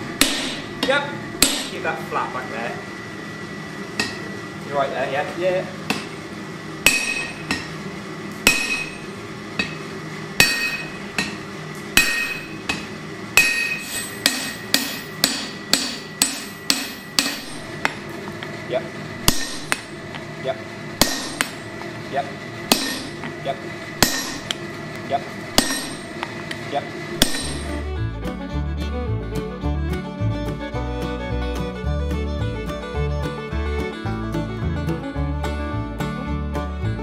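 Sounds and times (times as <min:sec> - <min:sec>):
anvil ringing: 0:00.2 - 0:01.8, 0:06.8 - 0:07.8, 0:08.4 - 0:09.8, 0:10.4 - 0:11.4, 0:12.0 - 0:18.0, 0:19.2 - 0:20.0, 0:21.0 - 0:21.7, 0:22.7 - 0:23.3, 0:24.0 - 0:24.6, 0:25.6 - 0:26.3, 0:27.2 - 0:27.8
hammer striking steel on anvil: 0:00.2 - 0:01.8, 0:04.0 - 0:04.2, 0:05.9 - 0:06.2, 0:06.8 - 0:07.8, 0:08.4 - 0:18.0, 0:19.2 - 0:19.9, 0:21.0 - 0:21.7, 0:22.7 - 0:23.4, 0:24.0 - 0:24.6, 0:25.5 - 0:26.6, 0:27.2 - 0:27.8.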